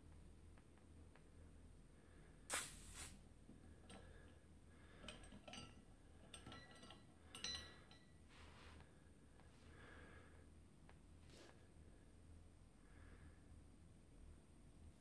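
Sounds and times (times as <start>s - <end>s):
gas hissing from bottle: 2.5s - 3.2s.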